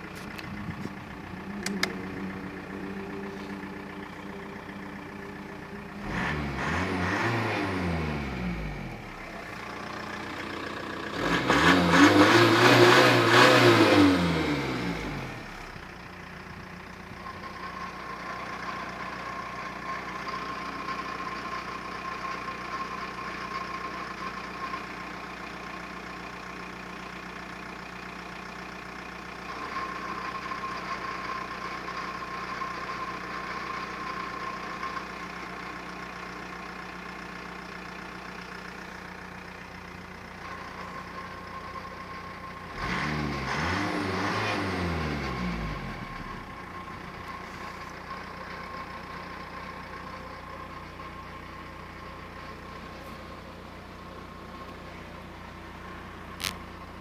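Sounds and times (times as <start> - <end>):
engine revving: 0.0 - 16.5, 40.4 - 50.4, 56.3 - 56.6
diesel engine idling: 0.0 - 57.0.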